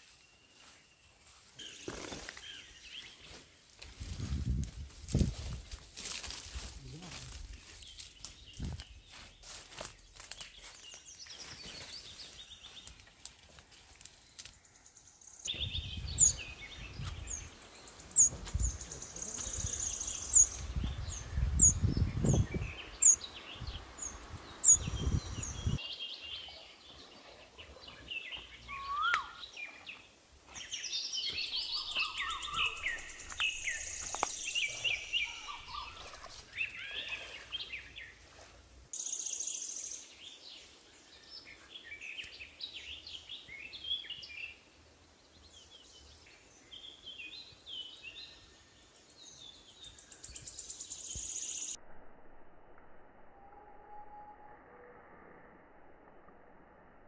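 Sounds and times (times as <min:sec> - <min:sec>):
birds singing and chirping: 0:06.2 - 0:13.2, 0:14.3 - 0:38.3, 0:39.0 - 0:44.6.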